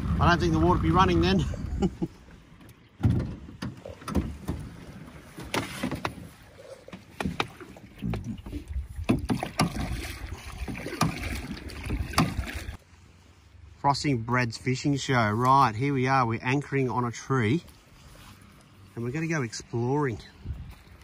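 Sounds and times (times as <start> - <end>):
water slapping against boat hull: 2.6 - 12.8
knocks against boat: 7.0 - 8.3.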